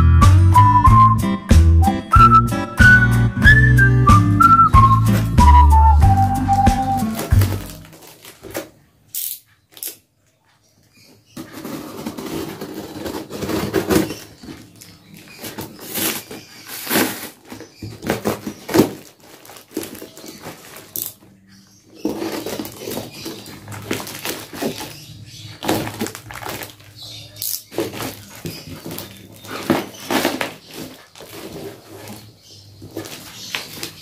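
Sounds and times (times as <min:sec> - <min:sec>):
cardboard parcel cut and torn: 0:04.9 - 0:08.8, 0:11.4 - 0:21.2, 0:21.9 - 0:27.0, 0:27.6 - 0:34.0.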